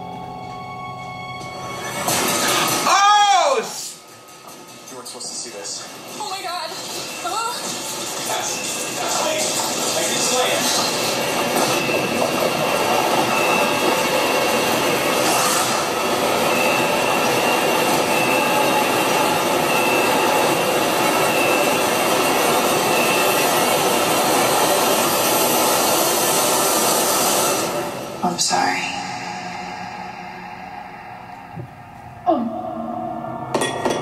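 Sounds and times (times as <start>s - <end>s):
noisy drone: 12.5s - 34.0s.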